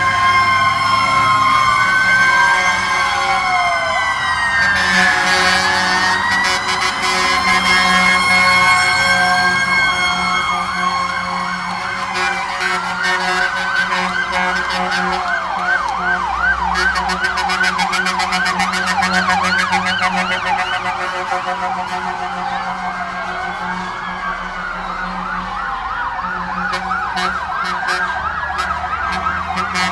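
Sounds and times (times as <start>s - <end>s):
fast yelp siren: 0.0s - 29.9s
fire truck horns: 0.0s - 29.9s
wailing siren: 0.0s - 29.9s.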